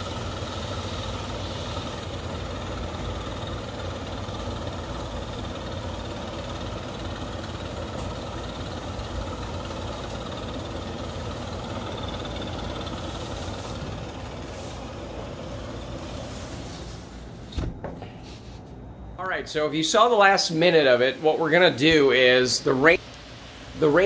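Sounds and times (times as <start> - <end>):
leaf blower running: 0.0 - 17.1.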